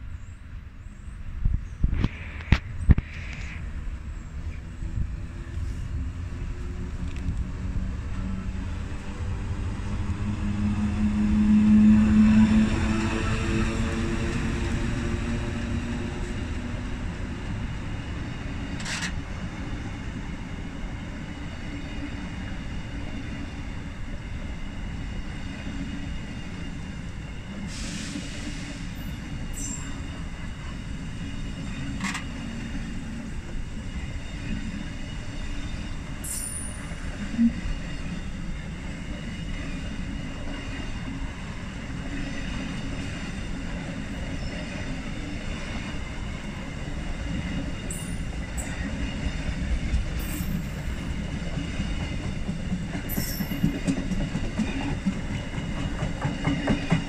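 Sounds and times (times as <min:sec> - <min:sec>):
train wheels rumbling on rail: 0:01.2 - 0:57.0
wheel squeals: 0:53.1 - 0:53.8.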